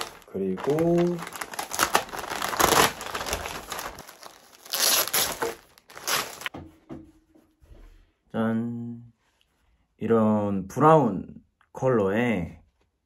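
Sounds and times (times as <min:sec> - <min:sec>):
plastic packaging crinkling: 0:00.0 - 0:06.5.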